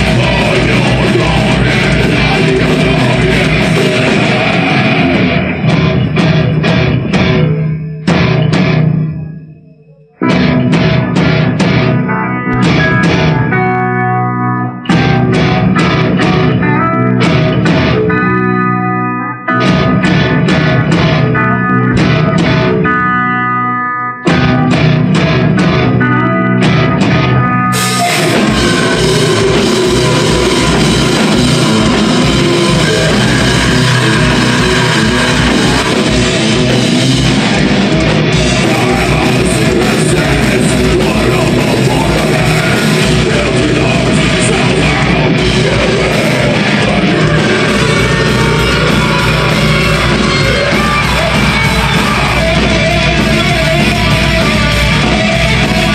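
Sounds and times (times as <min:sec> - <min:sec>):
person singing: 0:00.0 - 0:06.6, 0:25.5 - 0:55.9
distorted guitar riff: 0:00.0 - 0:55.9
metal band playing: 0:00.0 - 0:55.9.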